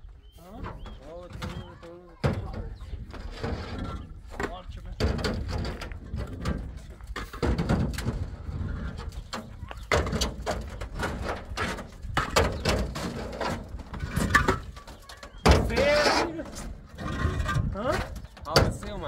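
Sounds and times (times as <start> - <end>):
concrete blocks clunking on metal: 0.5 - 19.0.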